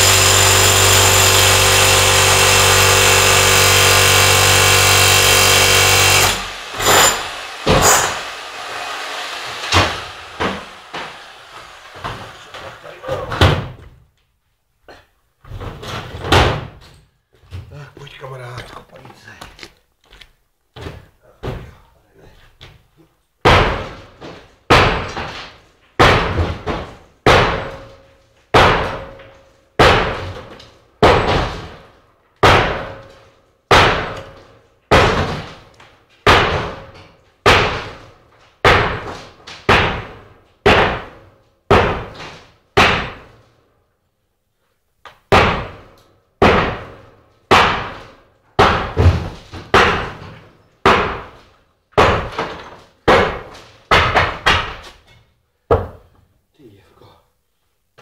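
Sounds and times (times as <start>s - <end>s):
loud sharp bangs: 0.0s - 13.8s, 45.3s - 48.0s.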